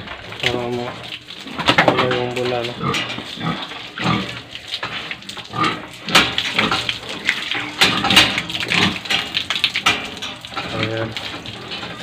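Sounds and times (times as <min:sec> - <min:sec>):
water from a hose: 0:00.0 - 0:12.0
pig grunting: 0:02.6 - 0:04.4, 0:05.4 - 0:09.4.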